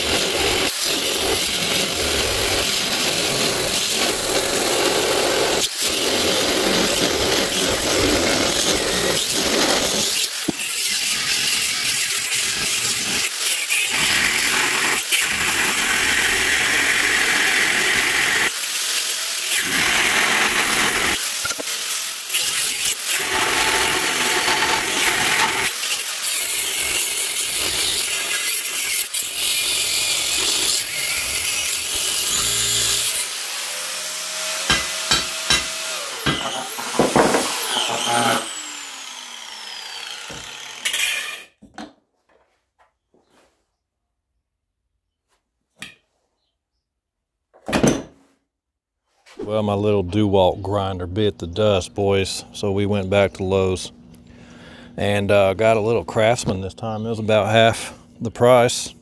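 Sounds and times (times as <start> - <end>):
angle grinder cutting steel: 0.0 - 41.6.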